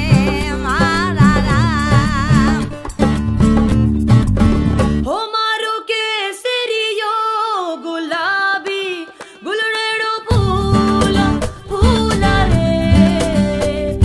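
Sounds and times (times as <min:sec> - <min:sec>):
woman singing: 0:00.0 - 0:02.9, 0:05.0 - 0:14.0
bass and beat backing: 0:00.0 - 0:05.1, 0:10.3 - 0:14.0.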